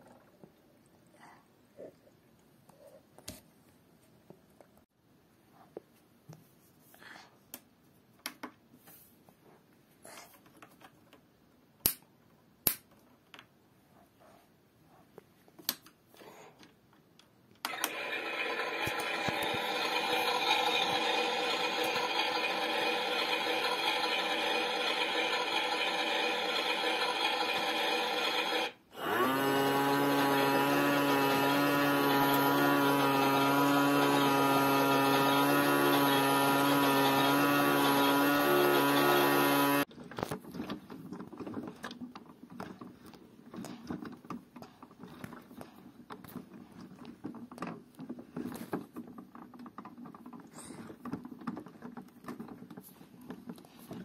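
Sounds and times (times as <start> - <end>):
toy washing machine motor whine: 17.6 - 39.9.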